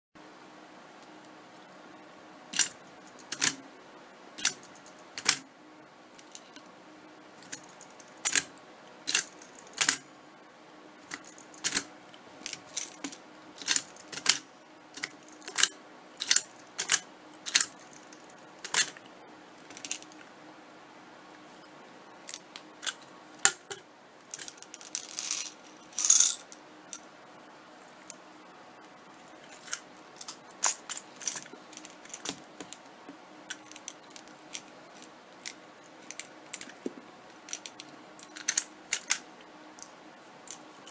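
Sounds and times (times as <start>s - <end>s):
plastic toy clicks: 3.3s - 3.6s, 9.1s - 10.0s, 13.6s - 14.4s, 15.0s - 17.7s, 37.5s - 39.2s.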